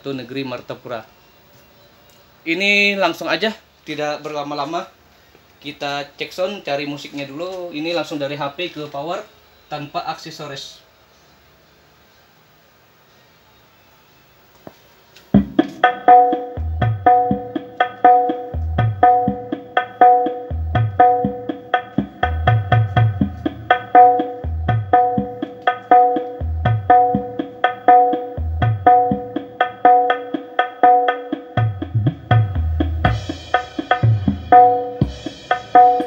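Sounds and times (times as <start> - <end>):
loud percussion-heavy music: 15.3 - 36.0.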